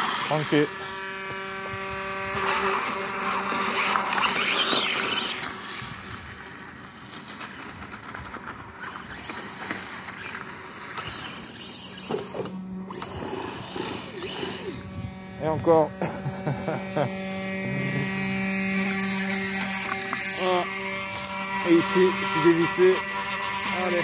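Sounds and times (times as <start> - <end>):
electric motor whining: 0.0 - 24.0
stones crackling under tyres: 3.8 - 12.4.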